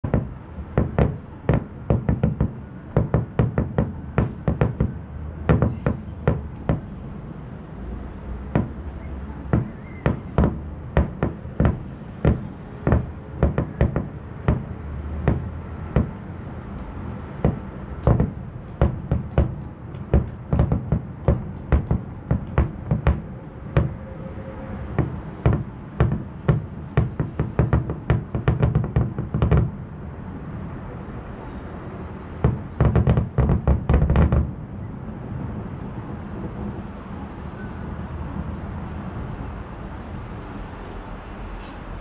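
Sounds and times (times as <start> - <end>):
distant fireworks bursting: 0.0 - 7.1, 8.4 - 29.9, 32.3 - 34.6.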